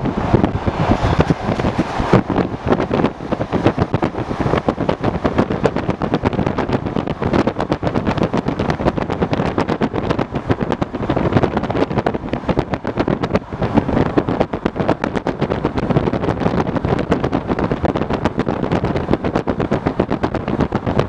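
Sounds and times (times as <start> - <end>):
train rumbling: 0.0 - 21.0
wheels and car rattling: 0.0 - 21.0
wind noise on microphone: 0.0 - 21.0.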